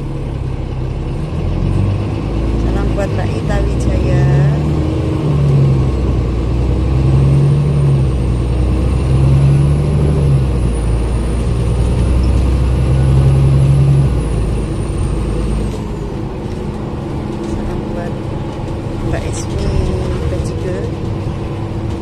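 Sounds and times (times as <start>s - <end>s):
bus engine rumble: 0.0s - 22.0s.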